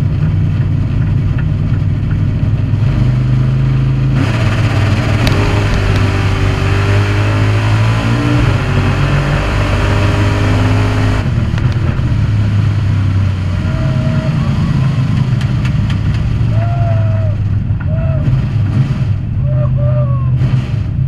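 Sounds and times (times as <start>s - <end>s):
car engine low drone: 0.0s - 21.0s.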